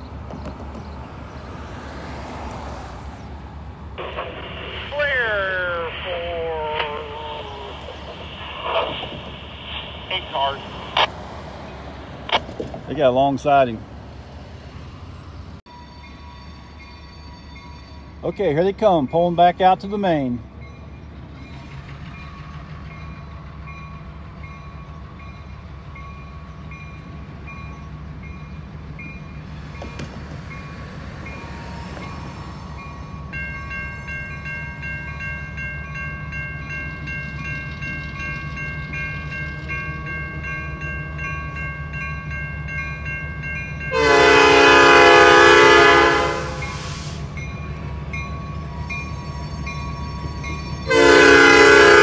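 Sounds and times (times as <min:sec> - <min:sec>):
diesel locomotives rumbling: 0:00.0 - 0:52.0
locomotive air horn blast: 0:43.9 - 0:47.4, 0:50.9 - 0:52.0.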